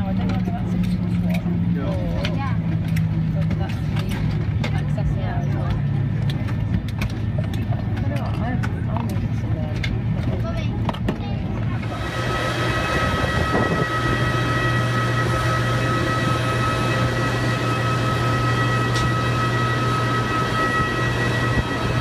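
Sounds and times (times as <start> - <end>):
aircraft mechanical whine: 0.0 - 22.0
low hum: 0.0 - 22.0
steady high tones: 11.9 - 22.0.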